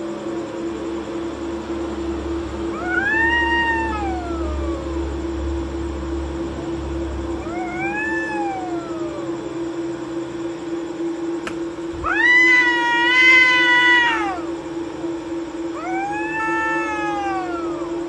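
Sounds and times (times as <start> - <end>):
cats yowling: 2.6 - 5.3, 7.3 - 9.4, 11.9 - 14.6, 15.7 - 18.0.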